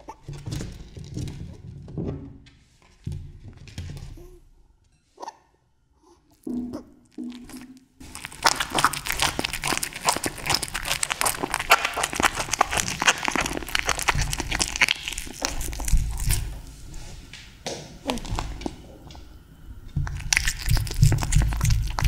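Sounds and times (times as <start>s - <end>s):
kitten chewing wet smacks: 7.3s - 16.6s, 20.0s - 22.0s.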